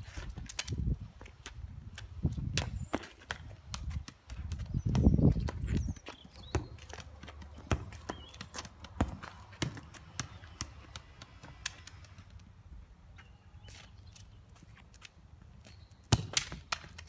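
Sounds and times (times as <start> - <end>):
wind rumble on microphone: 0.0 - 6.0
shoes tapping on brick paving: 0.0 - 17.0
football being kicked: 6.4 - 11.0, 16.1 - 16.9.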